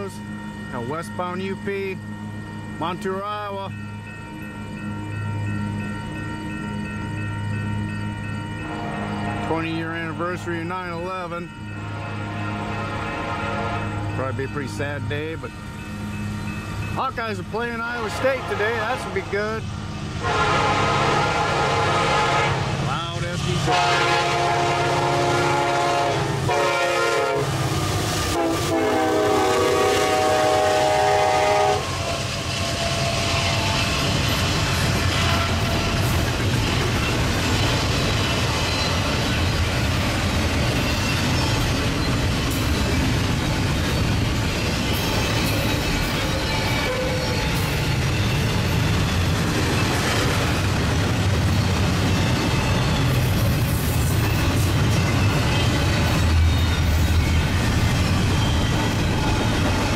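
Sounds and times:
train wheels on rails: 0:00.0 - 0:59.9
locomotive air horn blasts: 0:11.8 - 0:13.9, 0:20.2 - 0:22.8, 0:23.6 - 0:27.6, 0:28.3 - 0:32.2
freight cars rumbling and clattering: 0:32.2 - 0:59.9.

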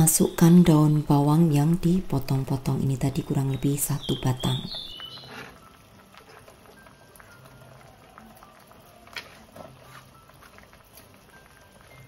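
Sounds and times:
broth simmering and bubbling: 0:00.0 - 0:12.0.

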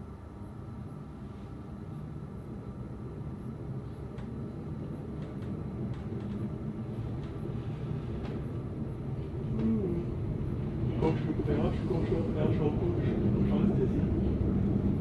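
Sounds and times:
train wheels rumbling on rails: 0:03.2 - 0:15.0
faint clicks: 0:04.1 - 0:04.4, 0:05.2 - 0:06.5.

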